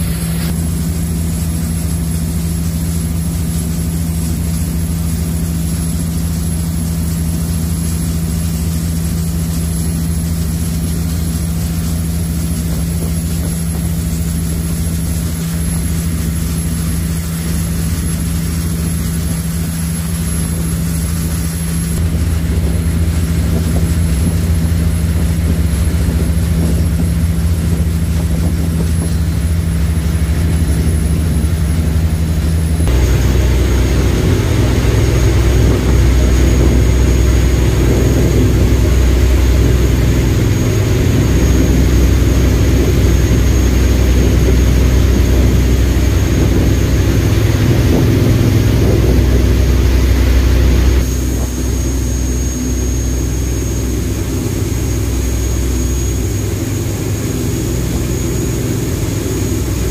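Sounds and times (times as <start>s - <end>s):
rushing water noise: 0.0s - 59.9s
ferry engines humming: 6.5s - 59.9s.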